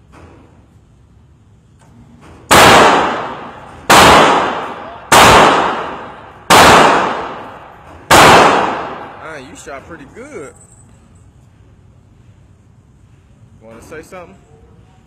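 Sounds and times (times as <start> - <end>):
pistol shots with echo: 2.5 - 9.2.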